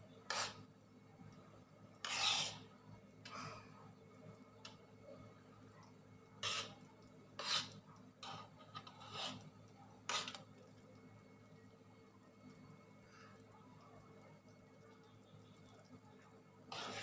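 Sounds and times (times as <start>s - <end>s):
low steady hum: 0.0s - 17.0s
metal spoon scraping a wok: 0.3s - 0.6s, 2.0s - 2.6s, 6.4s - 6.8s, 7.4s - 9.4s, 10.1s - 10.4s, 16.7s - 17.0s.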